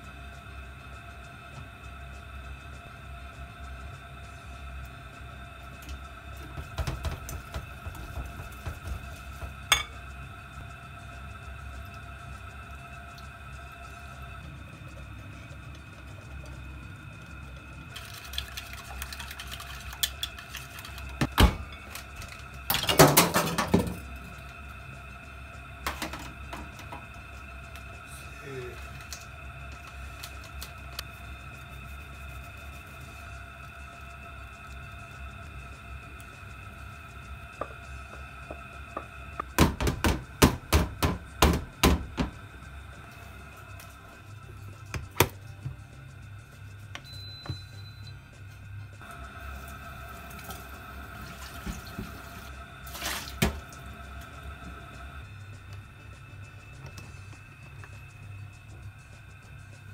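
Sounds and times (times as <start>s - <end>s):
metal pot knocked on hard surface: 6.5s - 10.0s
whisk and bowls clinking: 6.8s - 10.1s, 17.9s - 24.0s
whisk clattering: 17.9s - 21.2s.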